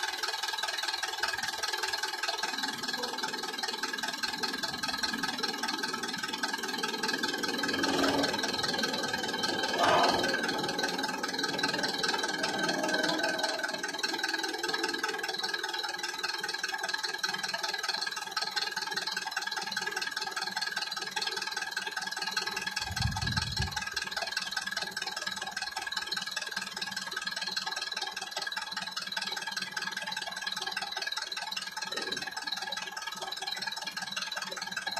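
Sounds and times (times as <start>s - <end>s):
level crossing bell ringing: 6.4s - 16.2s
short low rumble: 22.8s - 24.0s
train rumble: 22.8s - 24.0s.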